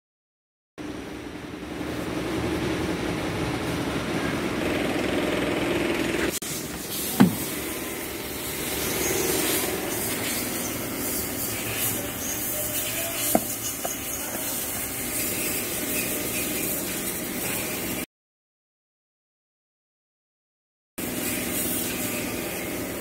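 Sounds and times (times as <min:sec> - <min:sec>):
door latch clunk: 0:07.2 - 0:07.5.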